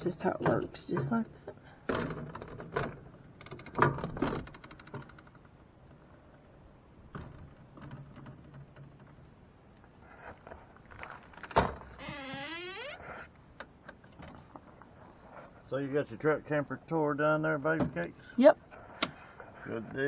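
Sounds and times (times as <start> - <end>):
camper door clicks and rattles: 1.9 - 5.1.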